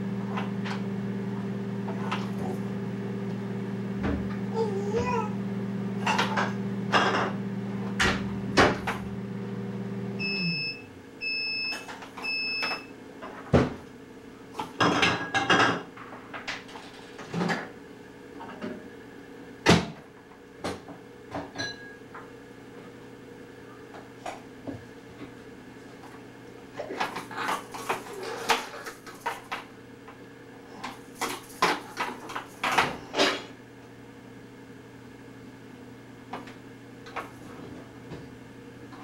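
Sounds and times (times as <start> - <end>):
microwave oven humming: 0.0 - 39.0
microwave beeps: 10.2 - 13.0, 21.6 - 22.0.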